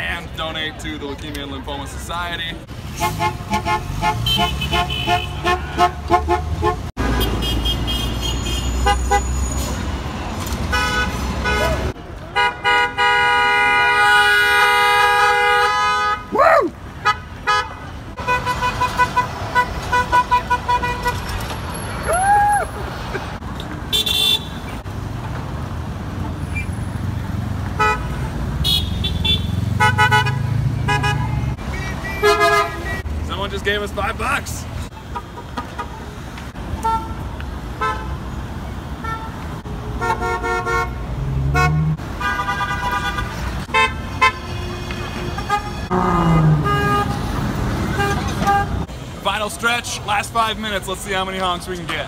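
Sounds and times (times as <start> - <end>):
idling traffic rumble: 0.0 - 52.0
vehicle horns honking: 3.0 - 9.7, 10.7 - 16.3, 17.0 - 21.4, 23.9 - 24.7, 27.8 - 33.1, 36.8 - 37.2, 37.8 - 38.2, 40.0 - 48.9.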